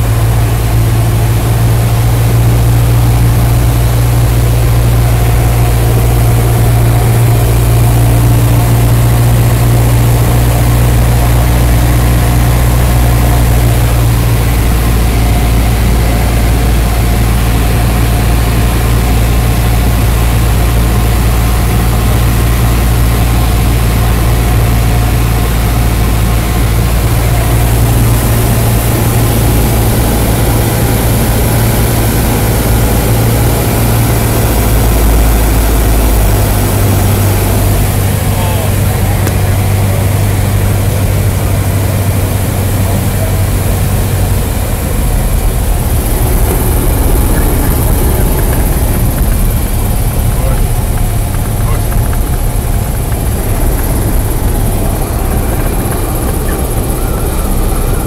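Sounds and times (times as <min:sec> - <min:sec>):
plane engine and propeller droning: 0:00.0 - 0:58.0.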